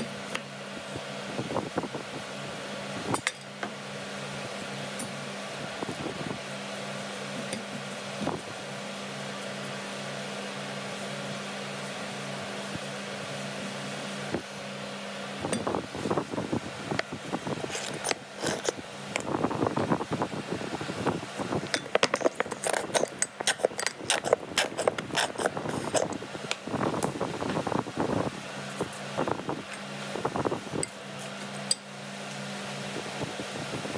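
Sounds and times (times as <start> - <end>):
steady machine hum: 0.0 - 33.9
onion scraping on cutting board: 17.6 - 18.8, 21.8 - 26.1.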